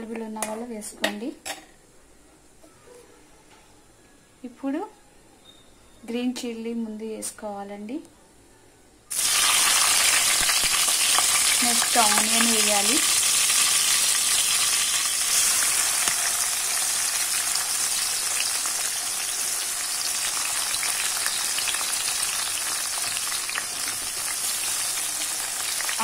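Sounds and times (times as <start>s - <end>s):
hot oil sizzling and crackling: 9.1s - 26.0s.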